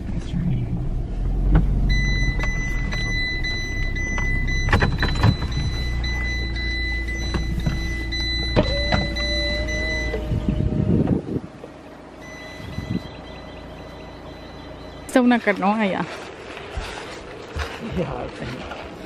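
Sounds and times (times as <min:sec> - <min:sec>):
lower hum: 0:00.0 - 0:17.6
car engine rumble from inside: 0:00.0 - 0:19.0
high-pitched electronic tone: 0:01.9 - 0:11.0, 0:12.2 - 0:15.3.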